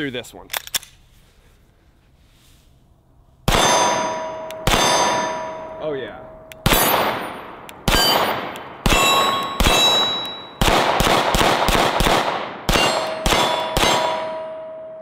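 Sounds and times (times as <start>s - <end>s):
pistol shots: 3.5s - 5.6s, 6.5s - 14.6s
steel targets ringing: 3.5s - 10.6s, 12.7s - 15.0s.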